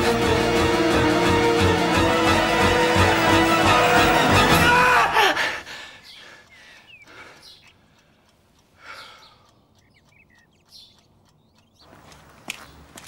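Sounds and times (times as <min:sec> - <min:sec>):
faint bird chirps: 0:06.0 - 0:08.0.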